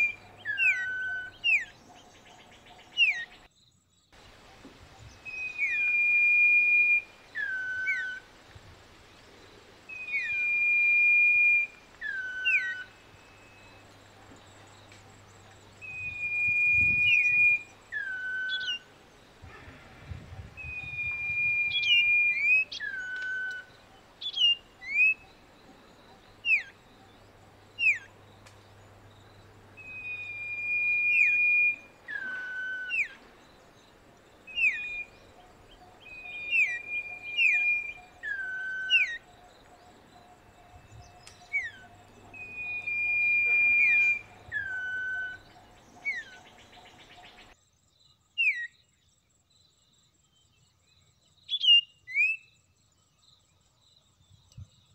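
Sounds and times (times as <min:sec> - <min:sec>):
bird whistling: 0:00.0 - 0:01.8, 0:05.2 - 0:08.2, 0:09.9 - 0:13.8, 0:15.8 - 0:18.9, 0:20.6 - 0:25.4, 0:29.8 - 0:33.2, 0:34.5 - 0:39.3, 0:40.6 - 0:47.2.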